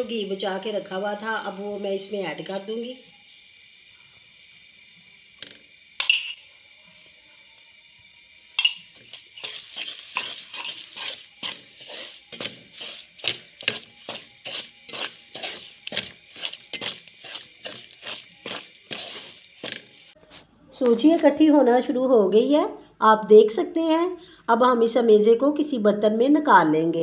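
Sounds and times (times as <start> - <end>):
wooden spatula scraping pan: 9.1 - 20.2.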